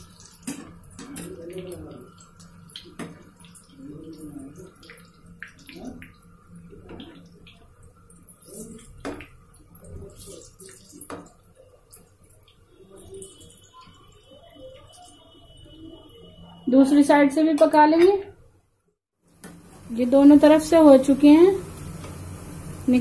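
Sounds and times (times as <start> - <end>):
oil bubbling and sizzling: 0.0 - 16.4, 19.2 - 23.0.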